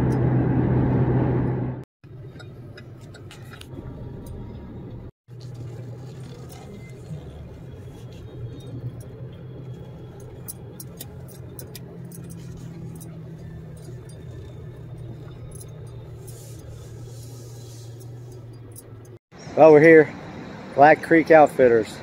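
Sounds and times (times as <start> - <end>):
engine and tyre noise: 0.0 - 22.0
road and engine hum: 0.0 - 22.0
light clicks and rattles: 5.4 - 19.2.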